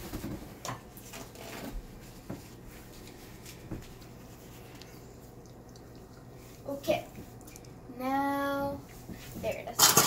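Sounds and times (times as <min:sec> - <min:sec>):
low room noise: 0:00.0 - 0:10.0.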